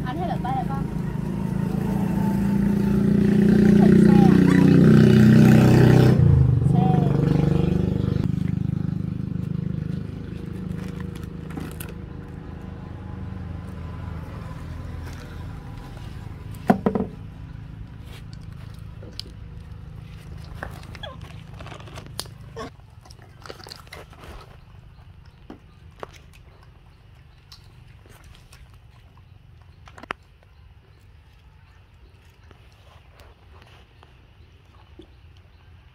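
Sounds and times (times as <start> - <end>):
vehicle engine hum: 0.0 - 23.3
snack wrappers crinkling: 10.3 - 12.5, 18.0 - 26.8.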